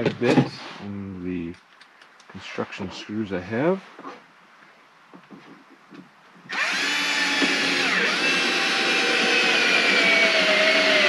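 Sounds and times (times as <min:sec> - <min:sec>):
cordless drill driving screw: 0:06.5 - 0:11.0.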